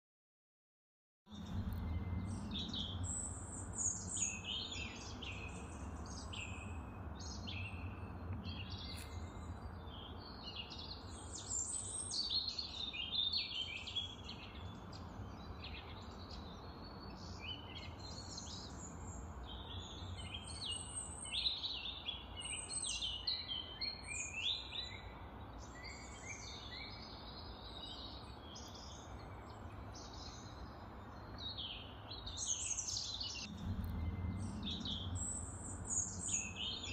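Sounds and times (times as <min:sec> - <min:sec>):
birds chirping and trilling: 0:01.3 - 0:36.9
low steady hum: 0:33.4 - 0:36.9.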